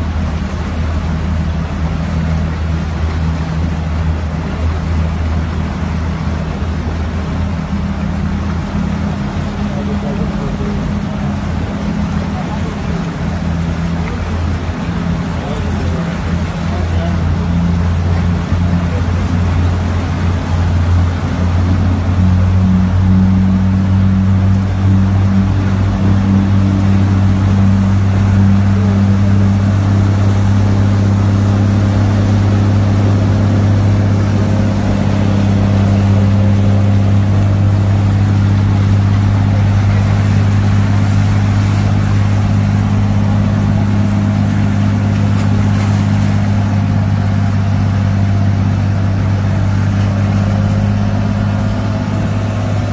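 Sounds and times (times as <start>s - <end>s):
car cabin low drone: 0.0s - 52.9s.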